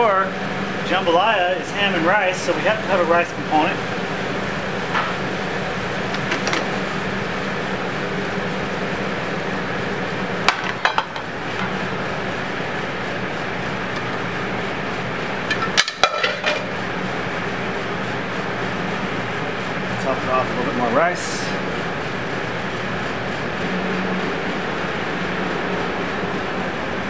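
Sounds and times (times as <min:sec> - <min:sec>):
kitchen hum: 0:00.0 - 0:27.0
metal pans clinking on ceramic plates: 0:15.5 - 0:16.6.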